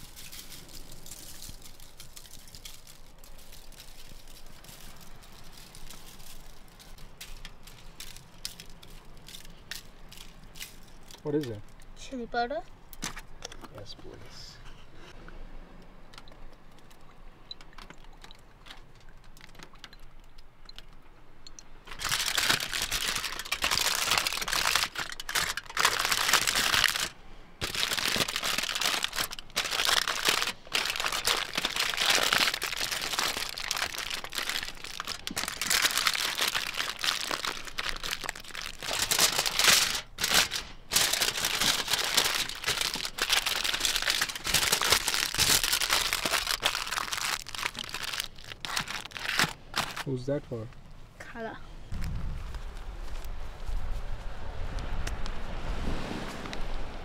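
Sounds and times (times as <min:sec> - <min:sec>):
aluminium foil crinkling: 0:00.0 - 0:11.9, 0:21.8 - 0:50.1.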